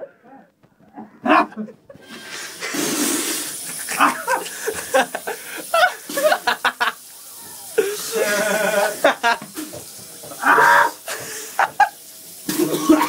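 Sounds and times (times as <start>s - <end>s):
man coughing and retching: 1.2s - 1.8s, 2.6s - 4.8s, 12.5s - 13.0s
sink tap running: 2.0s - 13.0s.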